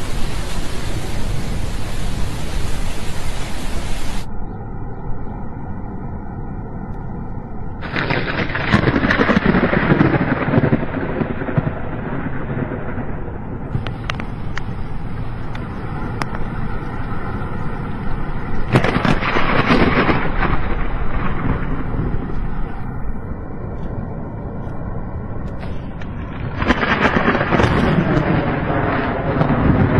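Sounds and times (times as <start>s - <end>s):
rain: 0.0s - 4.3s, 7.8s - 29.9s
thunder rolling: 0.0s - 4.3s, 7.8s - 29.9s
traffic on wet road: 0.0s - 4.3s, 13.7s - 22.8s.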